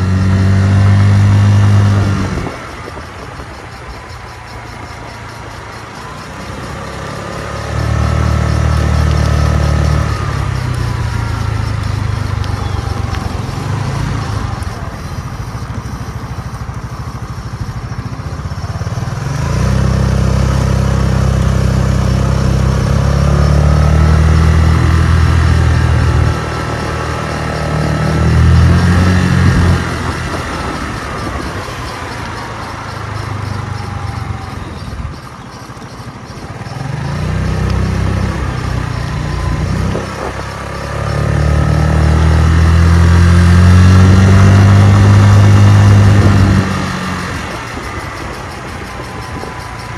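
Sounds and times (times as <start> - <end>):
scooter engine revving: 0.0 - 49.9.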